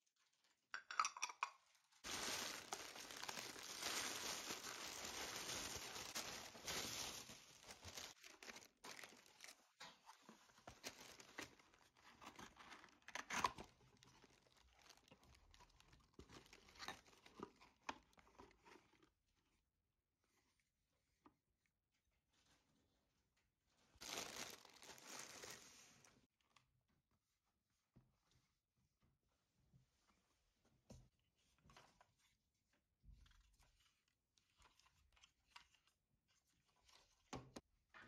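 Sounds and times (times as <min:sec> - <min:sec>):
ceramic bowls clicking: 0:00.8 - 0:01.6
cardboard packaging rustling: 0:02.0 - 0:17.5, 0:24.0 - 0:26.1.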